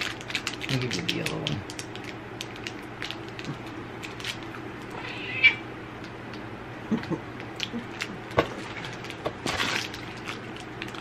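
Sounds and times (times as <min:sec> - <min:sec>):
cat meowing: 0:04.9 - 0:05.7.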